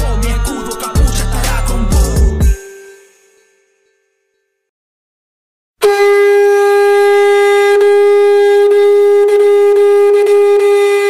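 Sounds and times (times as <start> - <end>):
horn-like wind instrument note: 5.8 - 11.0.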